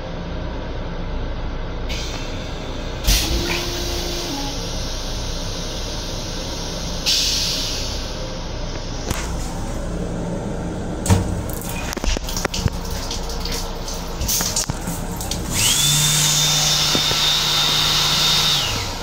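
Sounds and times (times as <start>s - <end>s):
electric hand dryer whine: 3.1s - 4.8s, 15.3s - 19.0s
faucet running: 11.5s - 18.6s.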